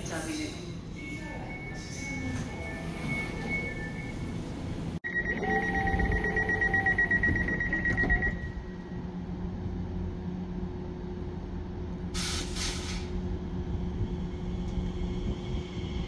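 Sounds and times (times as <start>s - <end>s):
train and station hum: 0.0s - 16.0s
trilling door warning beep: 1.0s - 4.4s, 5.0s - 8.8s.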